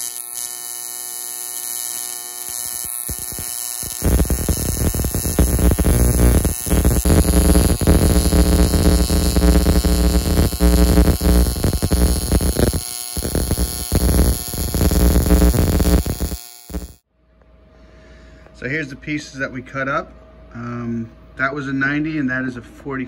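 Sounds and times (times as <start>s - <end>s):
welding arc buzzing: 0.0s - 17.0s.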